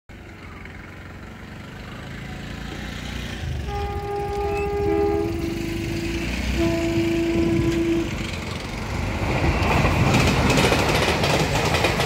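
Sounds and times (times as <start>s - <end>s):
locomotive rumble: 0.1s - 12.0s
locomotive horn: 3.6s - 8.4s.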